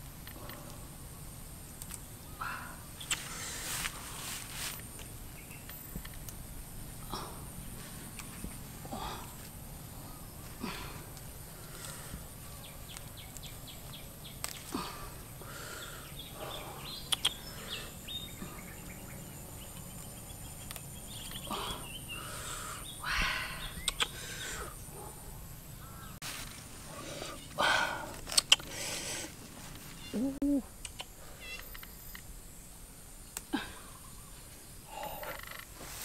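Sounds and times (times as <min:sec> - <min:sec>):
leafy branches rustling: 0:02.9 - 0:16.4, 0:26.2 - 0:30.3, 0:35.7 - 0:36.0
twigs snapping: 0:12.8 - 0:14.9.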